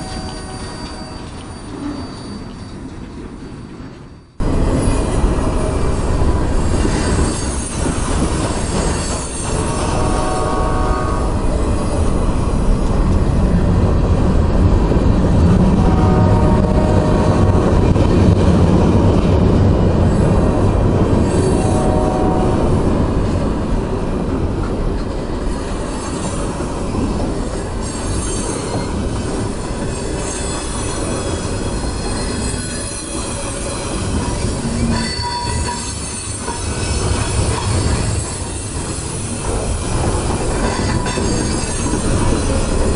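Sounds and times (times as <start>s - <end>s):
train wheel squeals: 0.0s - 13.1s, 21.2s - 22.7s, 25.0s - 42.9s
train wheels rumbling on rails: 0.0s - 42.9s.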